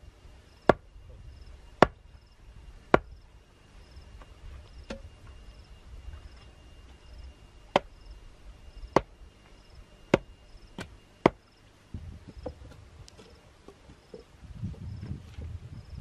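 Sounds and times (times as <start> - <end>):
wooden mallet pounding stake: 0.7 - 0.9, 1.8 - 2.0, 2.9 - 3.2, 4.8 - 5.0, 7.7 - 8.0, 8.9 - 9.1, 10.1 - 11.4.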